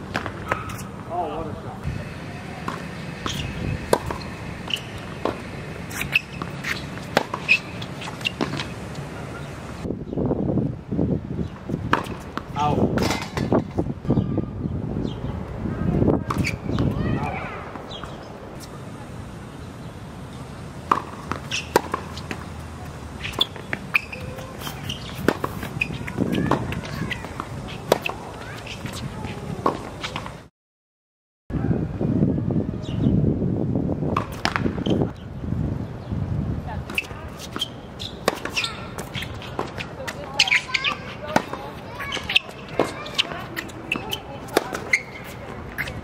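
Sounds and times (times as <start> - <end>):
racket striking tennis ball: 0.0 - 1.1, 2.6 - 9.5, 11.8 - 13.8, 20.8 - 30.3, 34.1 - 35.0, 36.9 - 46.0
sneakers squeaking on court: 0.0 - 1.1, 1.9 - 9.9, 11.4 - 14.3, 16.2 - 18.9, 19.5 - 30.4, 34.1 - 35.3, 36.7 - 46.0
tennis ball bouncing: 0.0 - 1.1, 2.1 - 9.8, 11.5 - 13.8, 16.2 - 18.9, 20.3 - 30.3, 34.1 - 35.0, 36.8 - 46.0.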